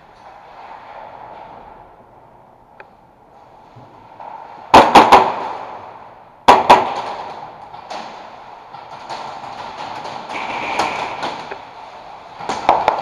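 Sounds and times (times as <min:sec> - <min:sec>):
airsoft gunfire cracks: 0:04.7 - 0:05.8, 0:06.5 - 0:07.5.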